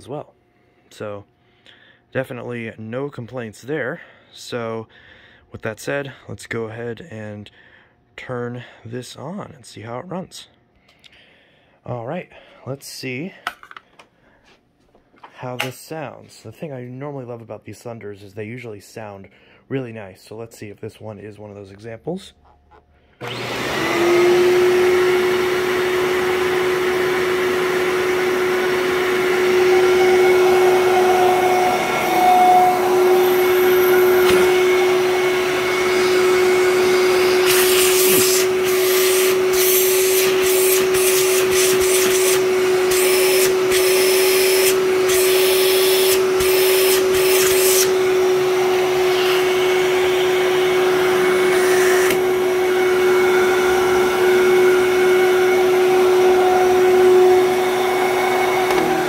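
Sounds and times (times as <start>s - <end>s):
upright vacuum cleaner running: 23.2s - 59.0s.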